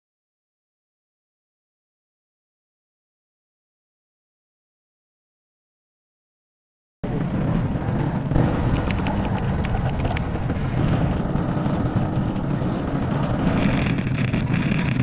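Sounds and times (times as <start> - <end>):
scooter engine running: 8.3 - 13.0
sharp clicks and rattles: 8.4 - 10.7.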